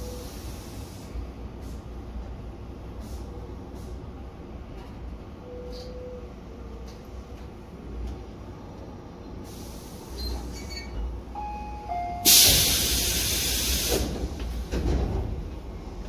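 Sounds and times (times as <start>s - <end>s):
compressed air hiss: 0.1s - 1.9s, 3.0s - 4.0s, 9.4s - 10.5s, 12.2s - 14.2s.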